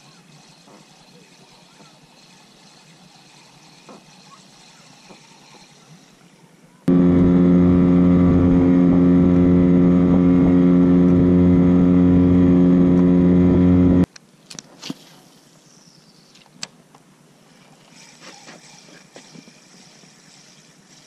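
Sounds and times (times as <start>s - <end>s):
small boat motor running: 0.0s - 14.1s.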